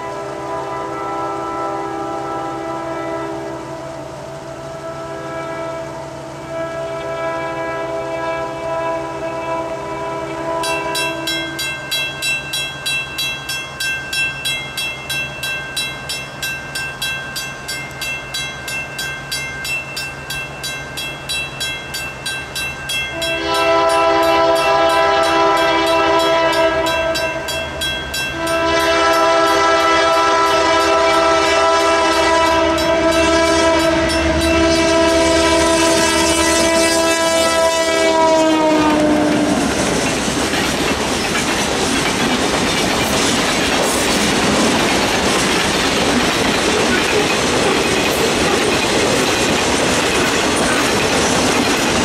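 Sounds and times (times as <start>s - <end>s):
locomotive horn blasts: 0.0s - 12.0s, 23.1s - 39.9s
crossing bell ringing: 10.3s - 52.0s
train cars clacking over rails: 10.5s - 52.0s.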